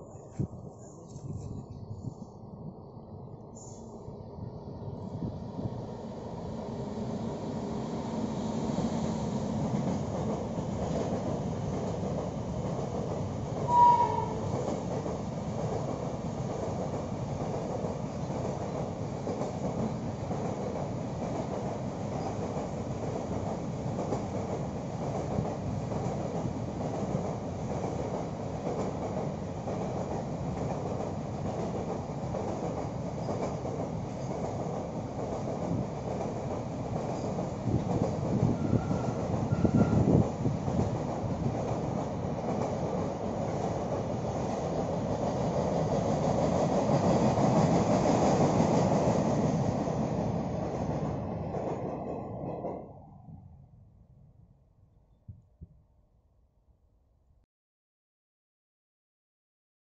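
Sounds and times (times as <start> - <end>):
freight train rumbling past: 0.0 - 53.7
short high train horn: 13.7 - 14.6, 38.5 - 40.1.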